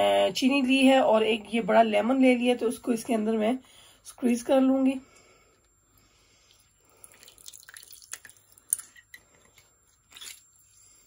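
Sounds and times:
juice dripping: 5.6s - 11.0s.

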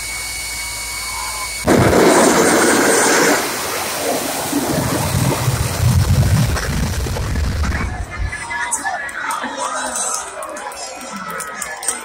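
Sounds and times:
jet engine roaring: 0.0s - 9.4s.

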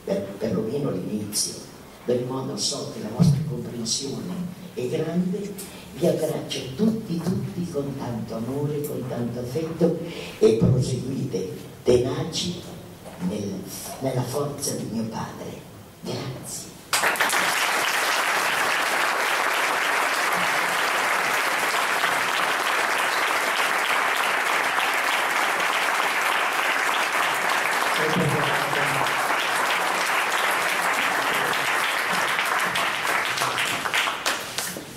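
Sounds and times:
audience applauding: 16.9s - 34.8s.

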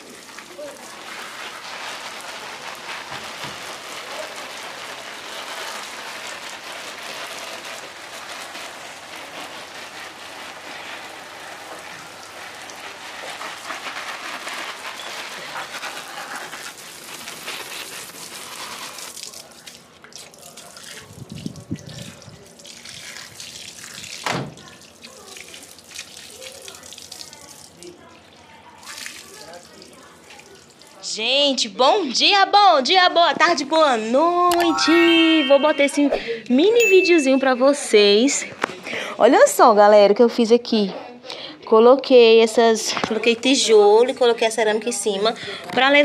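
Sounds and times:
water spraying on plant leaves: 0.0s - 28.0s, 28.8s - 31.0s.

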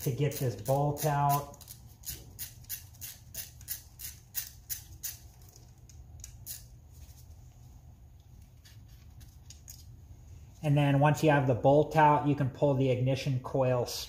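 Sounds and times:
ratchet wrench clicking: 0.0s - 5.6s.

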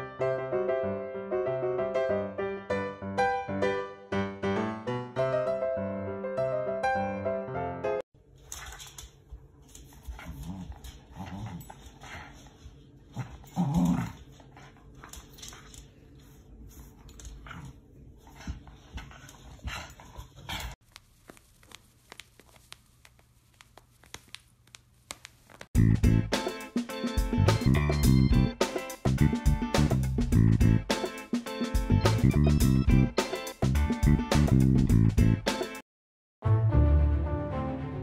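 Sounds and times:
dog growling and grunting: 10.2s - 12.3s, 13.1s - 14.8s.

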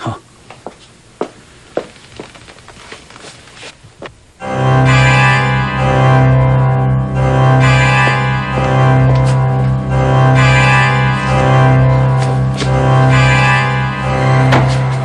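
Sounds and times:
low bass note: 4.4s - 15.0s
sustained keyboard chords: 4.4s - 15.0s.

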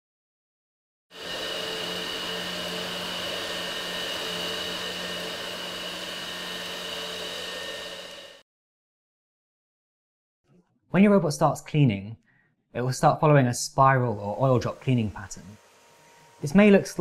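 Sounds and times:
robot vacuum whirring: 1.1s - 8.4s, 14.3s - 17.0s.

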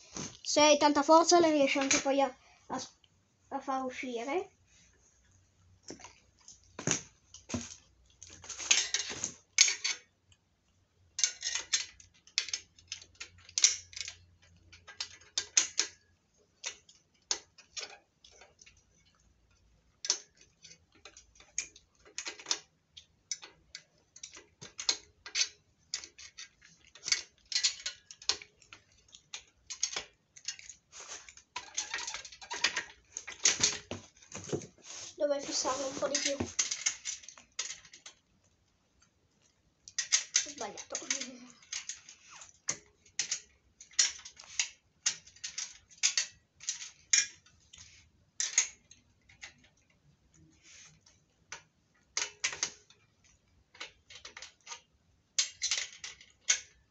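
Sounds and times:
hand tools clicking and clattering: 6.8s - 10.1s, 23.3s - 38.2s, 39.9s - 47.4s.

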